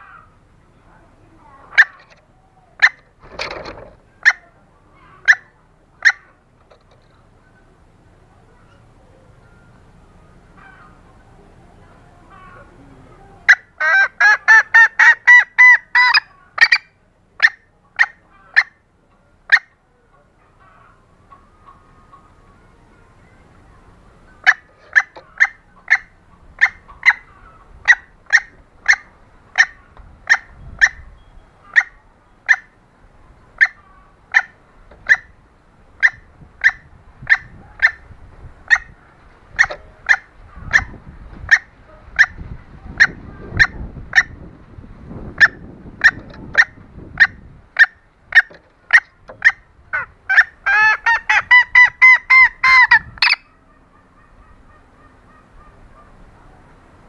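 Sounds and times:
junglefowl calling: 0.0s - 0.7s, 1.4s - 44.5s, 45.2s - 57.0s.

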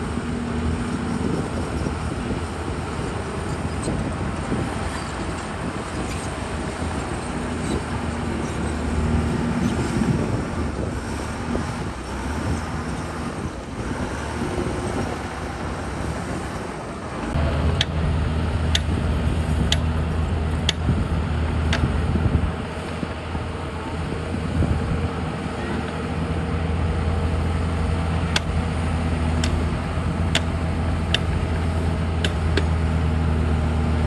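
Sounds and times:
bulldozer diesel engine running: 0.0s - 34.0s
sharp clicks: 18.7s - 18.9s.

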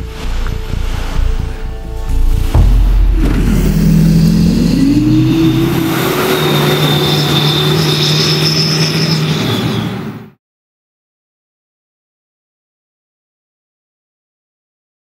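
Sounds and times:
diesel engine revving: 2.0s - 10.3s.

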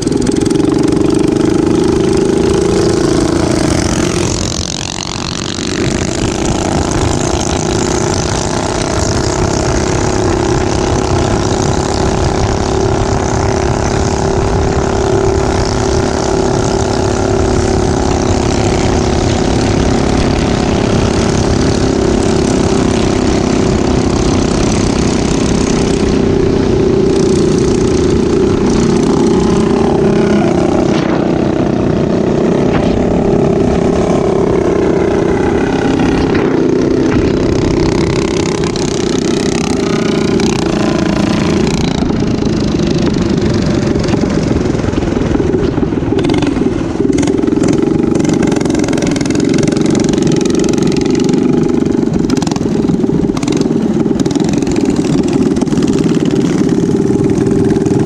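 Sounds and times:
minibike engine running: 0.0s - 58.0s
wind rushing over microphone: 0.0s - 58.0s.

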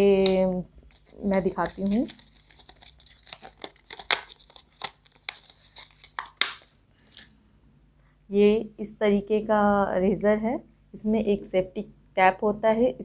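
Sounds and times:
plastic packaging crinkling: 0.0s - 7.4s.

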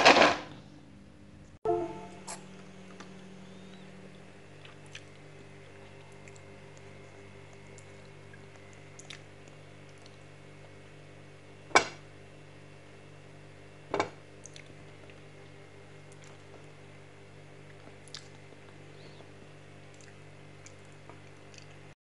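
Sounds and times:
low hum: 0.6s - 9.0s.

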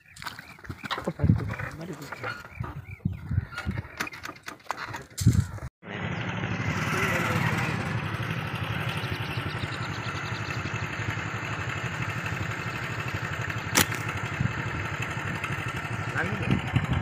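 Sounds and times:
engine droning: 5.8s - 17.0s
slingshot bands snapping: 13.8s - 14.1s.

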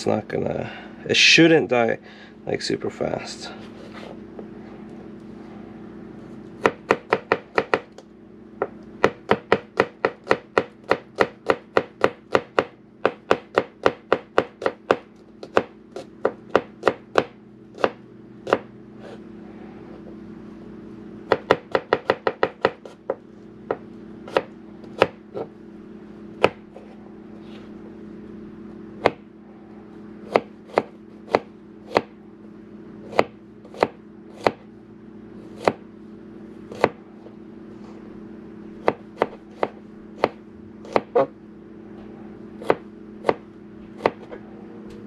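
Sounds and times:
knife chopping on cutting board: 6.6s - 7.9s, 8.6s - 19.2s, 21.3s - 25.5s, 29.0s - 29.2s, 30.2s - 32.1s, 33.1s - 34.6s, 35.5s - 35.8s, 36.7s - 37.0s, 38.8s - 41.3s, 42.6s - 43.4s, 44.0s - 44.4s.

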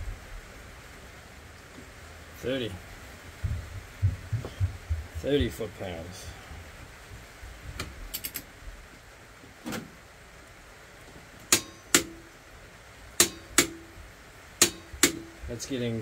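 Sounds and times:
torque wrench clicking: 8.1s - 8.4s.

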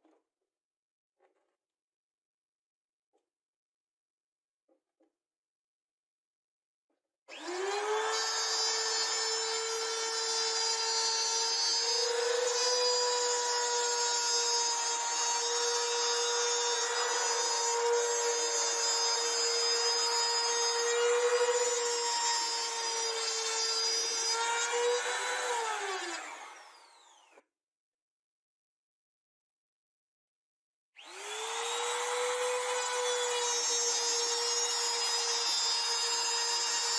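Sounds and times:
router bit cutting chipboard: 7.3s - 27.4s, 31.0s - 36.9s
router motor high whine: 7.3s - 27.4s, 31.0s - 36.9s.

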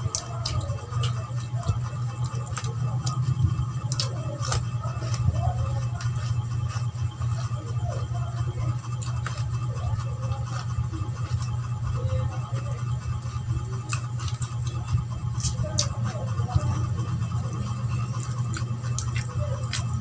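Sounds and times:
steady low hum: 0.0s - 20.0s
wet chewing and lip smacks: 0.1s - 7.5s, 13.2s - 20.0s.

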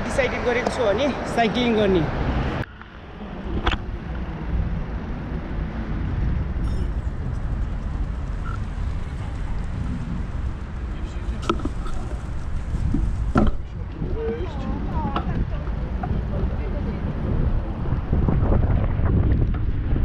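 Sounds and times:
wind buffeting microphone: 0.0s - 20.0s.

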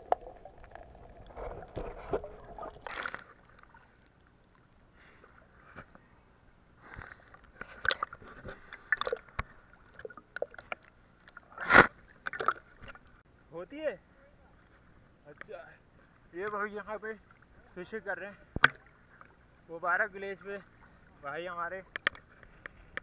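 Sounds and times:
seawater sloshing and splashing: 0.0s - 4.2s
sharp pops and crackles: 18.5s - 18.9s.

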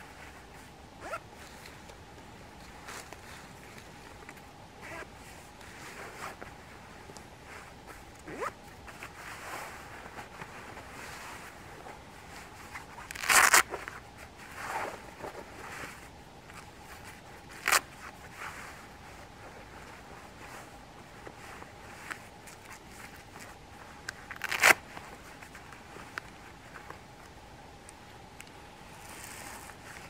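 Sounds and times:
fabric rustling: 0.0s - 27.4s
zip rasp: 1.0s - 1.2s.

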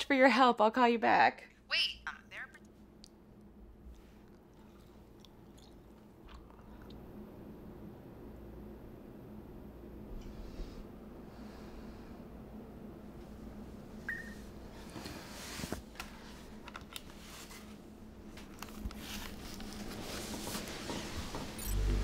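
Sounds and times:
small clicks and handling sounds: 16.0s - 17.2s
low hum: 21.5s - 22.0s.

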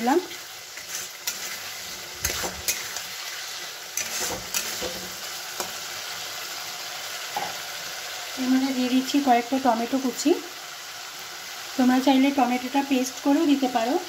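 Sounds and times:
food sizzling in hot oil: 0.0s - 14.0s
metal spatula scraping pan: 0.2s - 5.8s.

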